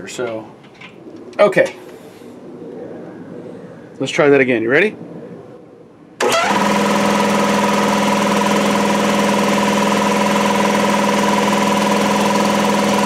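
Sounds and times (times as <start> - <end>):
air compressor motor humming: 6.2 - 13.0.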